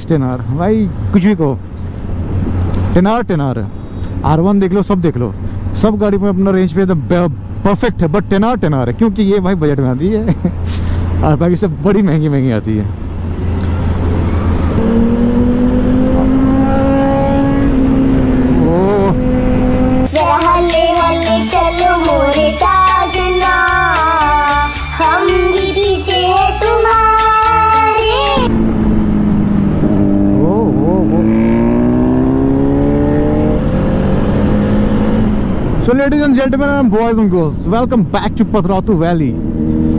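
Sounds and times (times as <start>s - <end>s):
wind and road rumble: 0.0s - 23.7s, 25.8s - 39.9s
motorbike engine at high revs: 13.4s - 20.1s, 28.4s - 35.8s, 39.3s - 39.9s.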